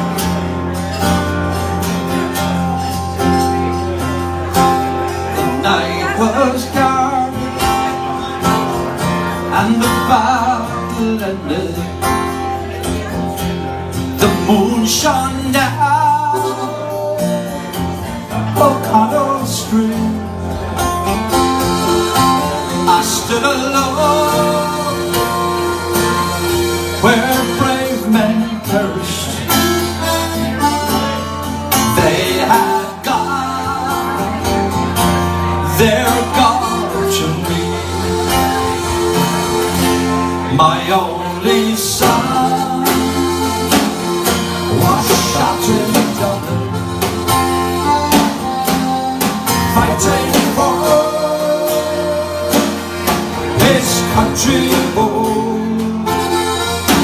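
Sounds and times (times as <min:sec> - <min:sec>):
strummed acoustic guitar: 0:00.0 - 0:57.0
man singing: 0:02.2 - 0:57.0
button accordion: 0:20.5 - 0:57.0.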